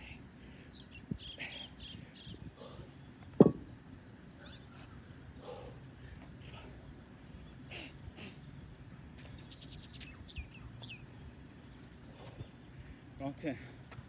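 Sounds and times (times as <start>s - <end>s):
birds chirping: 0.0s - 14.0s
man breathing hard: 5.4s - 6.9s.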